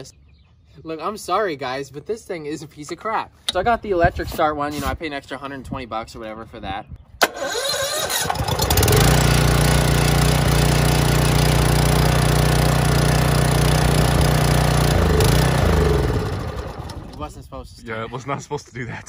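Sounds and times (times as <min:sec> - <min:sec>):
small gasoline engine running: 0:07.7 - 0:17.2.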